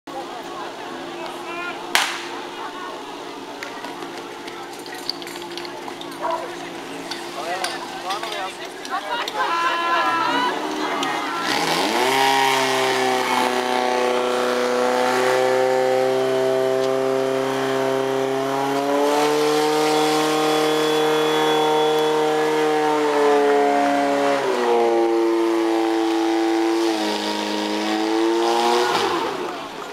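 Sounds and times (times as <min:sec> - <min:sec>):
pump engine running at high revs: 0:10.5 - 0:29.9.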